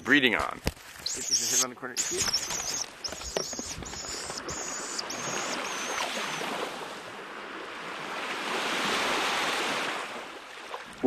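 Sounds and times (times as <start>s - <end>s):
surf washing onto shingle: 0.8s - 7.1s
high thin call: 1.1s - 6.5s.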